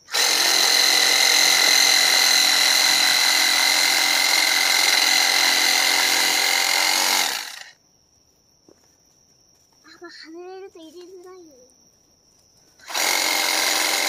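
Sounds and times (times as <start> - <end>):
reciprocating saw cutting branches: 0.0 - 7.7, 12.8 - 14.0.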